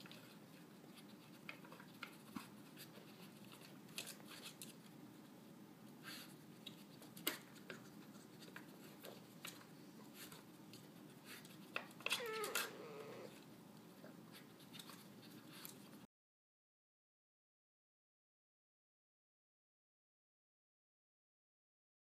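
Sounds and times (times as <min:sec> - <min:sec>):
dog whining: 0:12.0 - 0:13.4.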